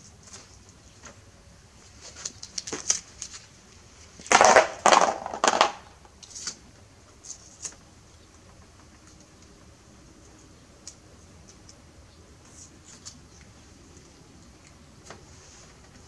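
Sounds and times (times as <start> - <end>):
tape crumpled by hand: 2.0 - 3.6, 4.2 - 6.6.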